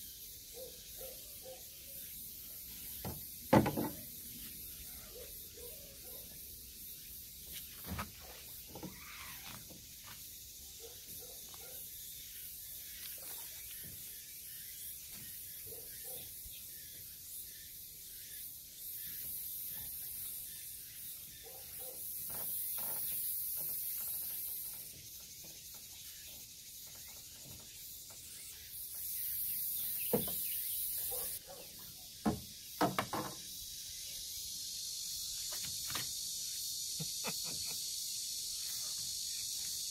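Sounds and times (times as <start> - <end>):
cicadas droning: 0.0 - 39.9
sharp knocks and thumps: 3.0 - 4.1, 30.1 - 30.5, 32.2 - 33.4.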